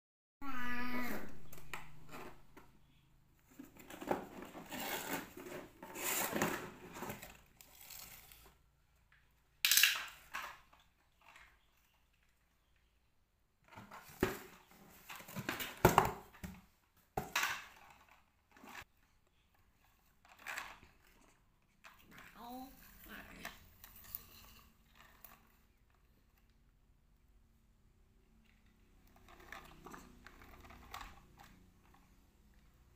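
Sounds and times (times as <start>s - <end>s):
cardboard and plastic rustling: 3.4s - 8.6s, 13.6s - 24.2s.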